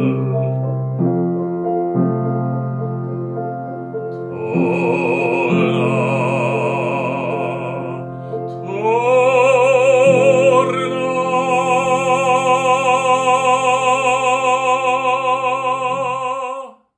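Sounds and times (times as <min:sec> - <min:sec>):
man singing operatically: 0:00.0 - 0:00.8, 0:04.3 - 0:16.9
piano accompaniment: 0:00.0 - 0:16.8.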